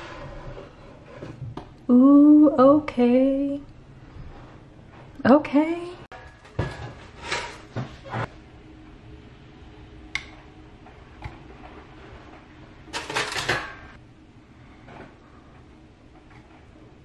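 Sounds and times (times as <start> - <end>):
faint steady hum: 0.0 - 17.0
kitchenware clicks and clinks: 12.9 - 14.0.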